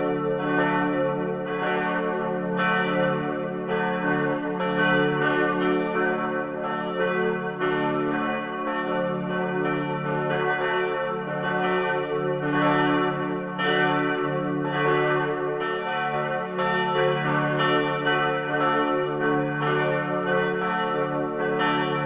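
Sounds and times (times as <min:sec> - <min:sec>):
church bells pealing: 0:00.0 - 0:22.0.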